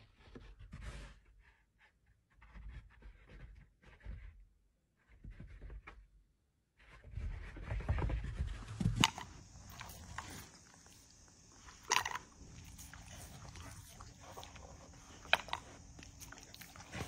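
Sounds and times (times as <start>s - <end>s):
dog sniffing: 8.6s - 17.0s.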